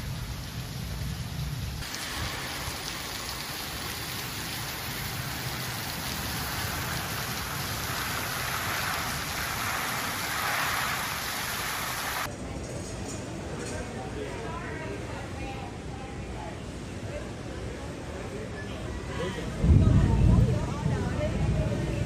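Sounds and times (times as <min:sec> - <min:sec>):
heavy rain pouring: 0:00.0 - 0:12.3.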